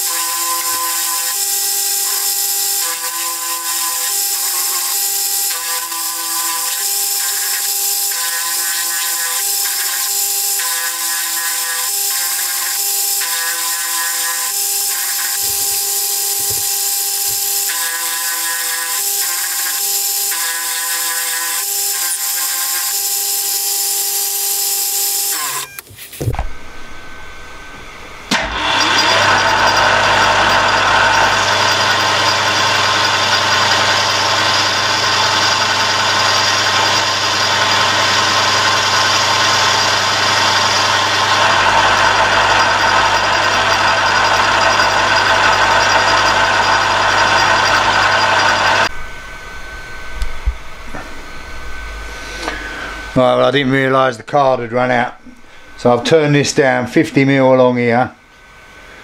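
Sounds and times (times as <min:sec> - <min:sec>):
metal lathe cutting whine: 0:00.0 - 0:25.7, 0:26.9 - 0:53.4
low hum: 0:26.2 - 0:34.4, 0:41.4 - 0:53.8.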